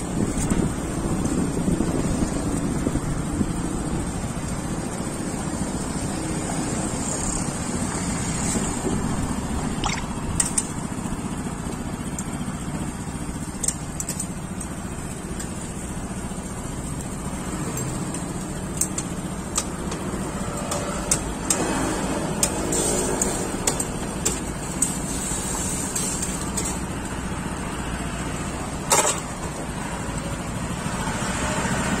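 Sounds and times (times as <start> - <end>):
street traffic: 0.0 - 32.0.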